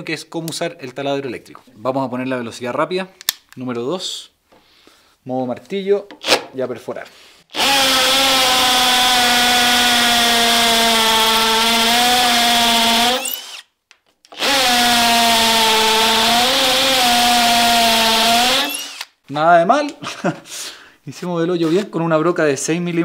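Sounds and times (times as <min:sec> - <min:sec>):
hammer drill boring into concrete: 0:07.5 - 0:13.7, 0:14.3 - 0:19.2.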